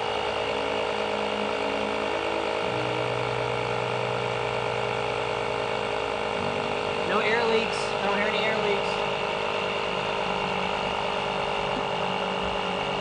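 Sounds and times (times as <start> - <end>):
air compressor running: 0.0 - 13.0.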